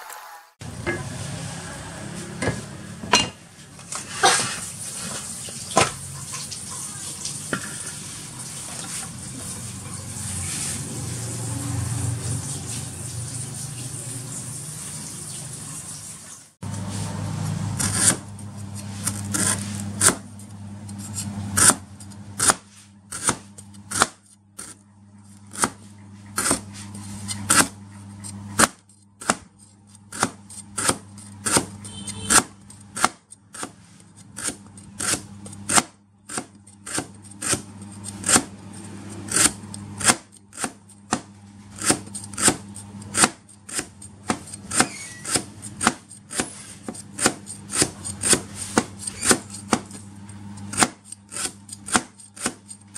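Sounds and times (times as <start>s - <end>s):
cleaver chopping on cutting board: 17.8s - 18.3s, 19.0s - 20.3s, 21.0s - 24.8s, 25.5s - 25.8s, 26.4s - 26.7s, 27.3s - 27.8s, 28.6s - 29.5s, 30.1s - 33.8s, 34.4s - 50.0s, 50.7s - 52.8s.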